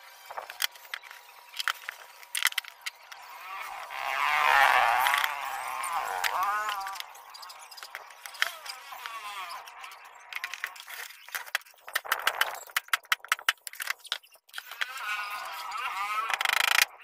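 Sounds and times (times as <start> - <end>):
wooden clicks and knocks: 0.4 - 3.0, 10.4 - 14.7, 16.3 - 16.9.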